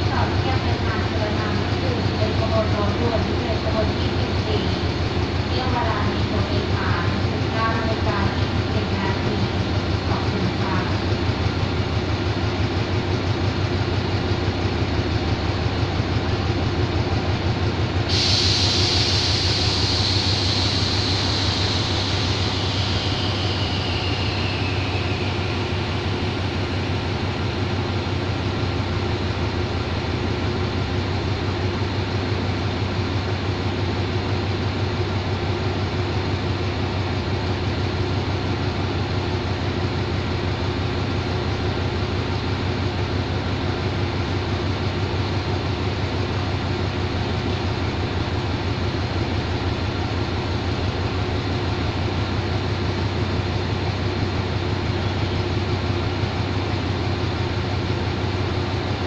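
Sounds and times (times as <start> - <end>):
locomotive engine idling: 0.0 - 59.0
loud hiss falling in pitch: 18.1 - 25.9.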